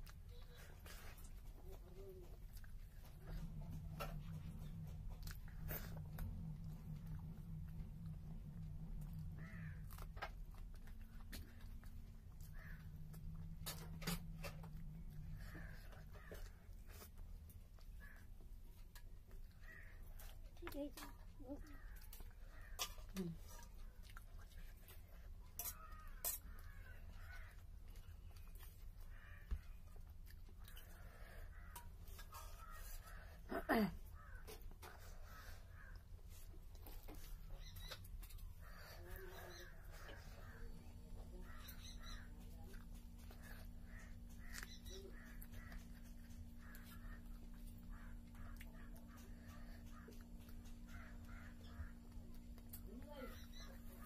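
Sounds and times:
close chewing and biting: 0:00.0 - 0:54.0
low steady hum: 0:00.0 - 0:54.0
crows cawing: 0:09.2 - 0:10.4, 0:12.4 - 0:16.8, 0:17.9 - 0:18.4, 0:19.4 - 0:20.2, 0:25.6 - 0:28.4, 0:29.0 - 0:29.9, 0:30.6 - 0:36.2, 0:38.6 - 0:52.5.

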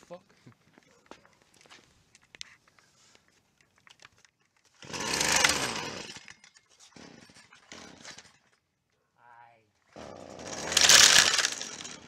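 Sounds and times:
string trimmer engine: 0:04.8 - 0:08.4, 0:10.0 - 0:12.0.

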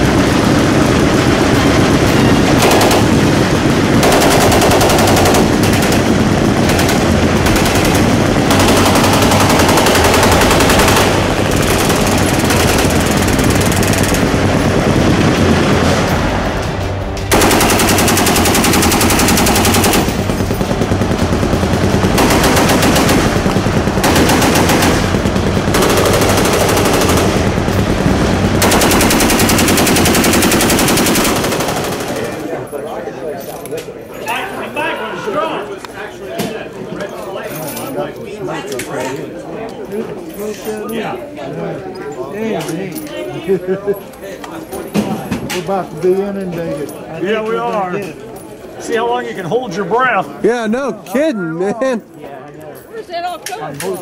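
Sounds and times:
machine guns firing automatic: 0:00.0 - 0:16.1, 0:17.3 - 0:32.5.

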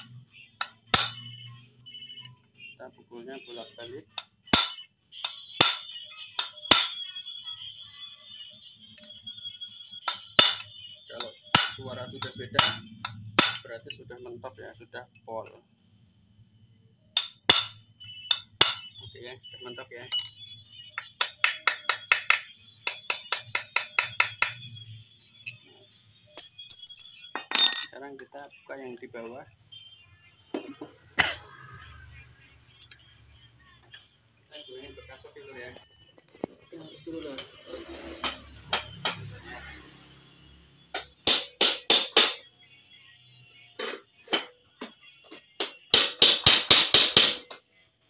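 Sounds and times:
hammer striking steel bolt: 0:00.6 - 0:01.2, 0:04.5 - 0:07.0, 0:10.1 - 0:10.7, 0:11.5 - 0:11.8, 0:12.6 - 0:13.7, 0:17.2 - 0:18.9, 0:21.2 - 0:24.6, 0:41.0 - 0:42.4, 0:45.6 - 0:47.6.

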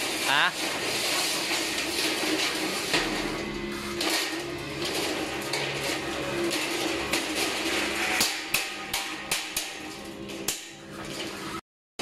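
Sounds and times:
steel roll-up shutter rattling: 0:00.0 - 0:11.6
sharp metal knocks: 0:08.1 - 0:10.8.

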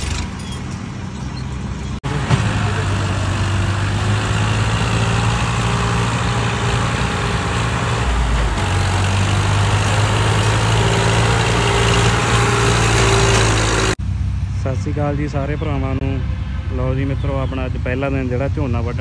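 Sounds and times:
tractor diesel engine under load: 0:00.0 - 0:14.0.

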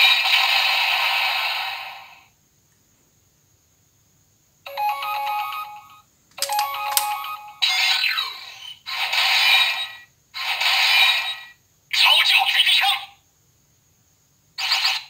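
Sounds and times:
toy beeping tune: 0:04.7 - 0:08.0.

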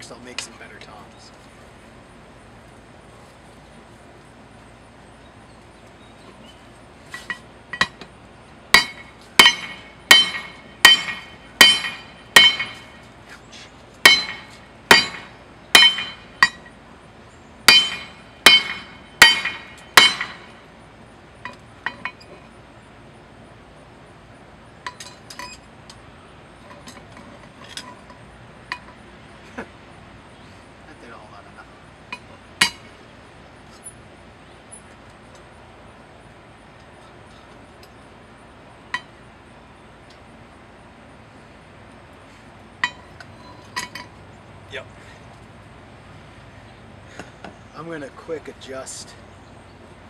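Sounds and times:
hammer ringing blows on metal: 0:08.7 - 0:13.1, 0:14.0 - 0:16.8, 0:17.6 - 0:20.8.

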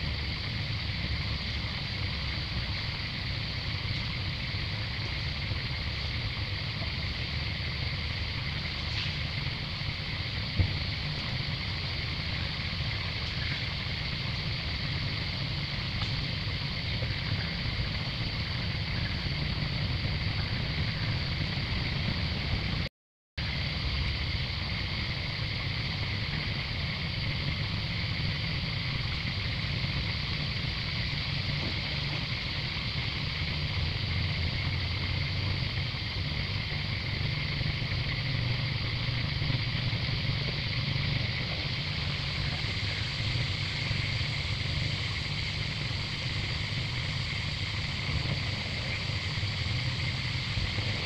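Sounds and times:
high-pitched hiss: 0:00.0 - 0:51.0.

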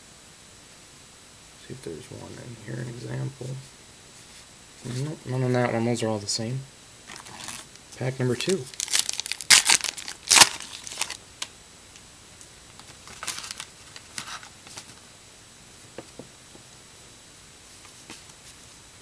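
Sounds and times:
cards rustling: 0:07.1 - 0:07.7, 0:08.4 - 0:11.2, 0:12.7 - 0:15.0
wrapper ripping: 0:07.1 - 0:07.7, 0:08.5 - 0:11.2, 0:12.8 - 0:15.0.

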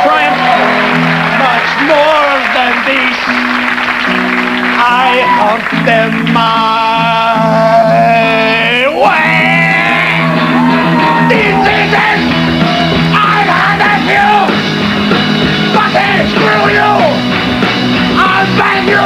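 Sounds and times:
rock band playing: 0:00.0 - 0:19.0
person singing and yelling: 0:04.8 - 0:14.6, 0:15.7 - 0:17.2, 0:18.2 - 0:19.0.

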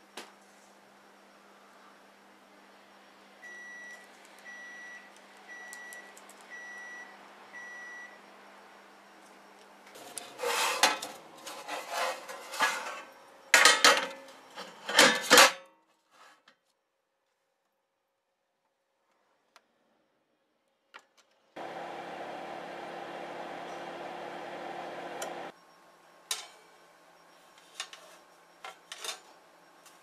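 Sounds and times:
metal baking tray scraping and clattering: 0:09.9 - 0:16.4
oven beeping: 0:21.6 - 0:25.5.

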